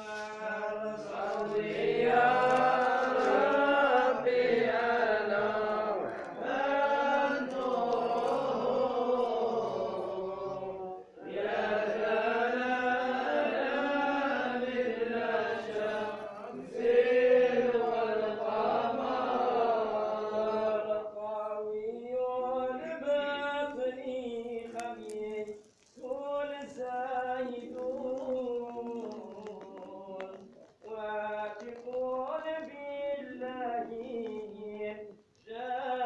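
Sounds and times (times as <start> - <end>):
men chanting: 0.0 - 25.0.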